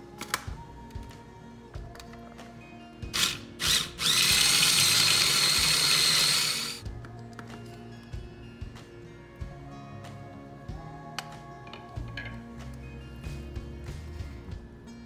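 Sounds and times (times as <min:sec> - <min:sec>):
food processor motor whine: 0:03.2 - 0:06.8.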